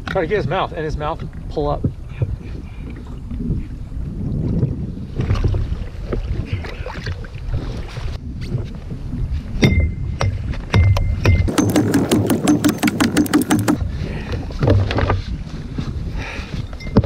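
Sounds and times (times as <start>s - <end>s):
faint water and paddle sounds: 0.0s - 10.6s, 11.5s - 17.0s
wind buffeting microphone: 0.0s - 17.0s
sharp clicks: 11.5s - 13.8s.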